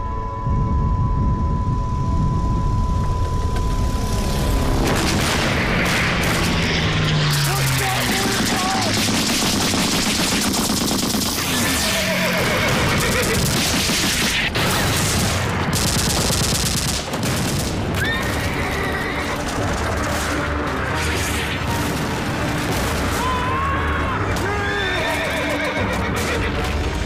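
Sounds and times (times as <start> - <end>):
gunfire and explosions: 4.2 - 27.0
horses whinnying: 11.5 - 13.4, 18.0 - 19.4, 23.6 - 26.6.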